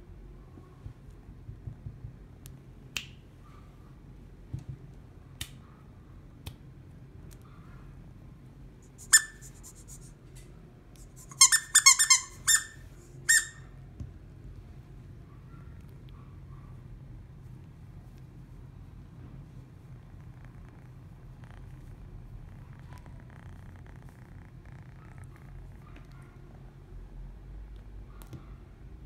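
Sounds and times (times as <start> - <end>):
squeaky toy squeaking: 9.0 - 9.8, 11.2 - 13.7.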